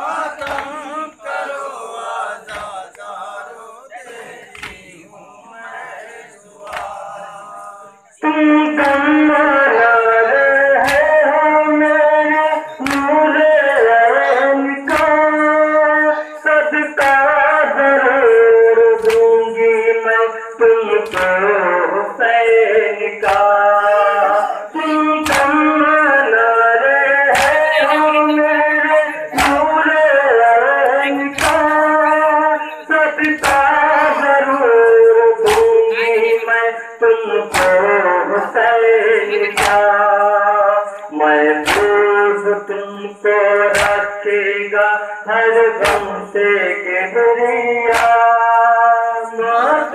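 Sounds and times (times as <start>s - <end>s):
group chest-beating slaps: 0.0s - 5.0s, 6.6s - 7.6s, 8.8s - 9.3s, 10.6s - 12.0s, 12.8s - 13.9s, 14.8s - 15.7s, 17.0s - 20.0s, 20.9s - 21.7s, 23.2s - 24.6s, 25.2s - 26.5s, 27.2s - 32.5s, 33.2s - 36.4s, 37.4s - 38.0s, 39.4s - 40.2s, 40.9s - 42.7s, 43.4s - 44.4s, 45.6s - 46.8s, 47.6s - 48.8s
man chanting a lament: 0.0s - 49.9s.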